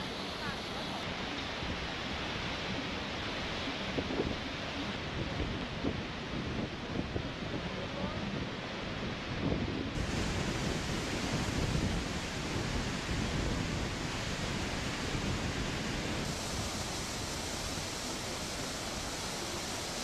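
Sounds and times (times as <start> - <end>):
waterfall roaring: 0.0 - 20.0
wind buffeting microphone: 5.1 - 20.0.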